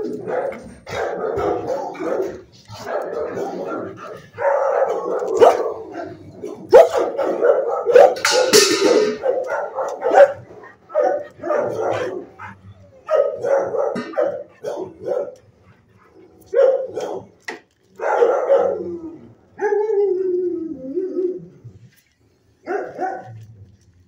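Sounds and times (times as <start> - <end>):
dog barking: 0.0 - 15.4, 16.0 - 17.4, 18.0 - 18.9, 22.6 - 23.3.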